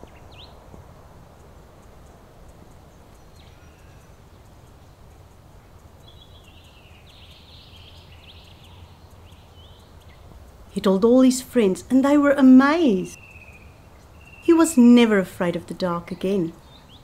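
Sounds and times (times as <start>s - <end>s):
birds chirping: 0.0s - 17.0s
low outdoor rumble: 0.0s - 17.0s.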